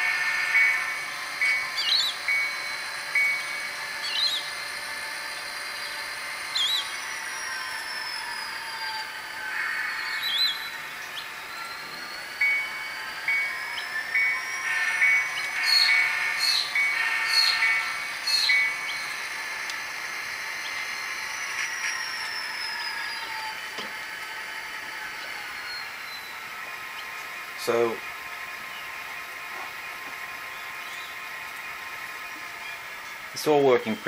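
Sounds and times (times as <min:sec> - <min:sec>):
model locomotive bell ringing: 0:00.0 - 0:28.7
model train running on track: 0:00.0 - 0:34.0
rising and falling tone: 0:00.1 - 0:27.3.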